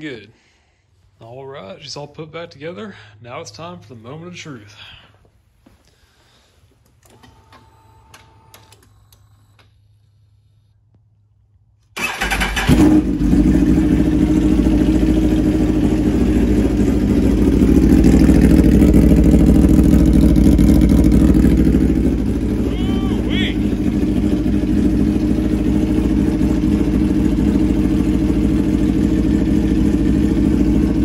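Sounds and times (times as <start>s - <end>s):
motorcycle engine starting and idling: 11.8s - 31.0s.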